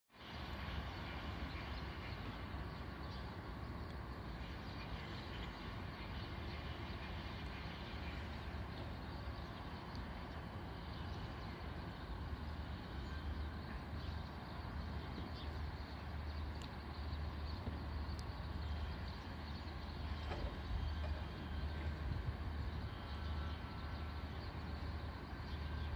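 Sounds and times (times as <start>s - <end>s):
low urban rumble: 0.1s - 25.9s.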